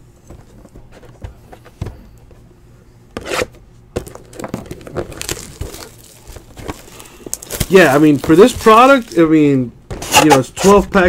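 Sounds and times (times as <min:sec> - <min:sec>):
packs rustling: 0:04.0 - 0:10.5.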